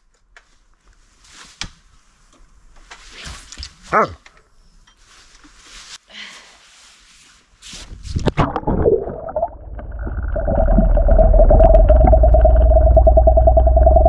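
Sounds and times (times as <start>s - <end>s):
muffled underwater current rumble: 8.2s - 14.0s.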